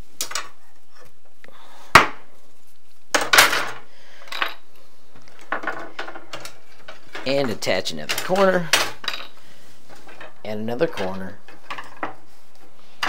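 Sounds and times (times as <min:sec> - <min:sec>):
metal rods clattering on wood: 0:03.2 - 0:04.6, 0:05.4 - 0:12.2.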